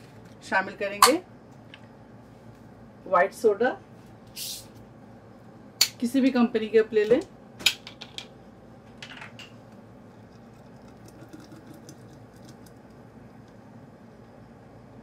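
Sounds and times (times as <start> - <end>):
soda water fizzing: 10.2 - 13.0.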